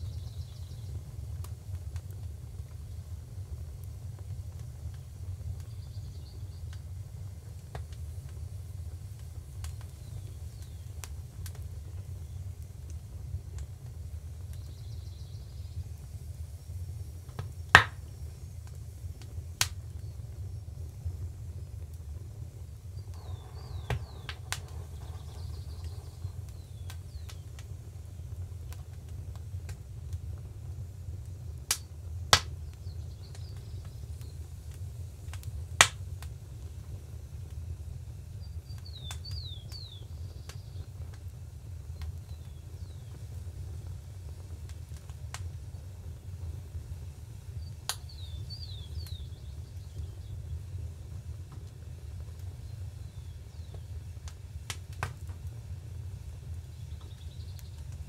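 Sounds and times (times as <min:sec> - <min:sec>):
wood fire crackling: 0:00.0 - 0:58.0
sharp snaps: 0:09.2 - 0:12.0, 0:17.3 - 0:19.8, 0:23.0 - 0:27.7, 0:31.7 - 0:36.3, 0:47.8 - 0:50.1, 0:53.6 - 0:55.4
low rumble: 0:18.3 - 0:29.8
faint starling chatter: 0:23.0 - 0:28.4.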